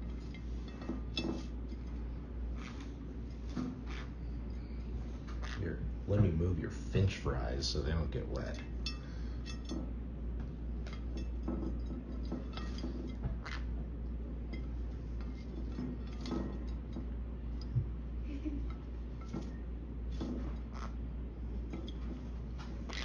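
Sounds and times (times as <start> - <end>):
steady low hum: 0.0 - 23.0
beak and feet clinking on plate: 8.8 - 9.9.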